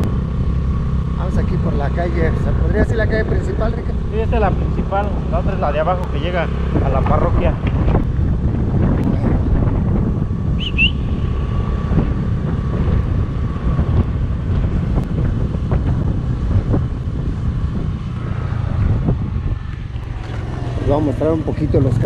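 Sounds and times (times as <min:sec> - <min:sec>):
motorcycle engine rumble: 0:00.0 - 0:22.0
wind buffeting microphone: 0:00.0 - 0:22.0.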